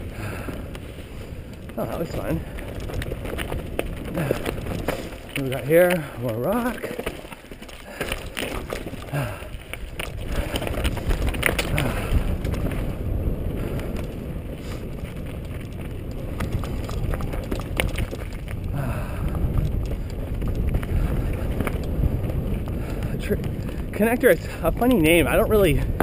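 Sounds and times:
bike rattling over rock: 0.0s - 26.0s
tyres rumbling on dirt: 0.0s - 26.0s
wind on microphone: 7.9s - 26.0s.

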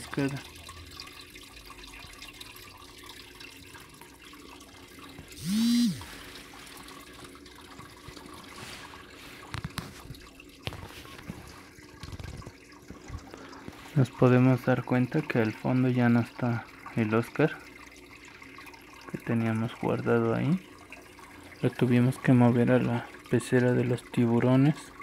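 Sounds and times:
aquarium filter water splashing: 0.0s - 25.0s
loud pitched sound: 5.4s - 6.1s.

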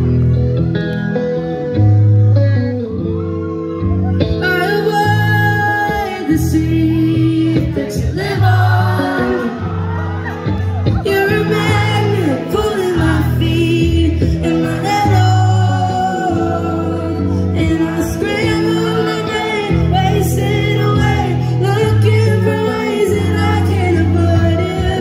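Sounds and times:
band playing pop song: 0.0s - 25.0s
woman singing: 4.4s - 9.8s, 10.9s - 25.0s.

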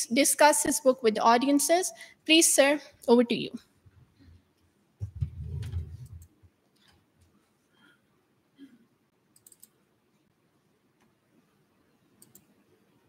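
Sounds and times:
microphone handling noise: 5.0s - 6.3s
faint short clicks: 9.4s - 9.8s, 12.2s - 12.5s.

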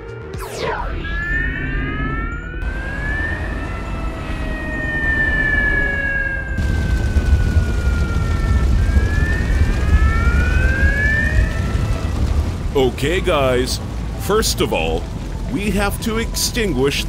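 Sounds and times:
cartoon siren wailing: 0.4s - 12.3s
low rumble: 0.4s - 17.0s
loud noisy rumble: 2.6s - 4.8s, 6.6s - 16.4s.

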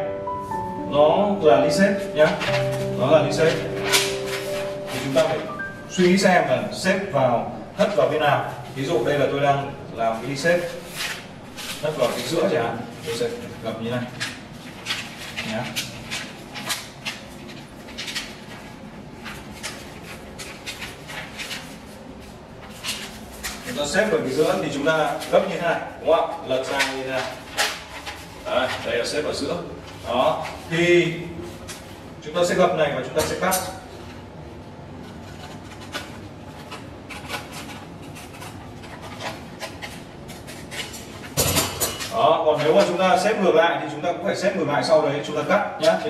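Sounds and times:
paper rustling and scraping: 2.0s - 5.4s, 10.0s - 25.6s.

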